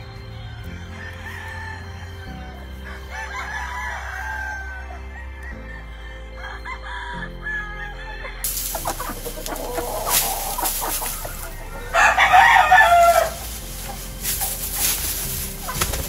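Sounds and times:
slow chords background music: 0.0s - 16.0s
roosters crowing: 0.3s - 16.0s
hens clucking: 7.8s - 16.0s.

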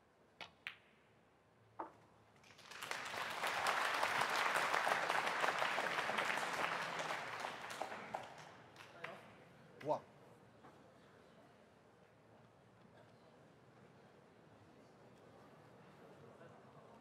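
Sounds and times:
audience applause: 2.4s - 9.0s.

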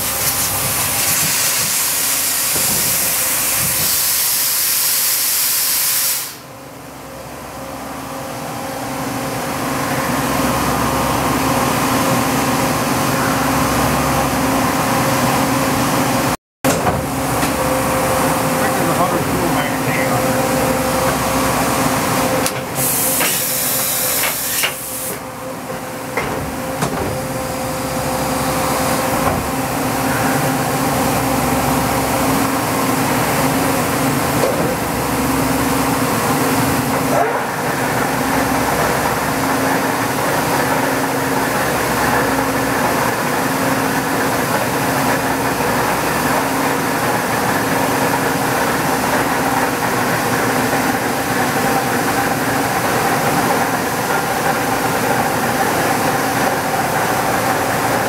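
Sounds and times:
air hissing blast: 0.6s - 6.5s, 22.7s - 25.2s
machine clunks: 16.7s - 17.6s, 26.1s - 27.3s.

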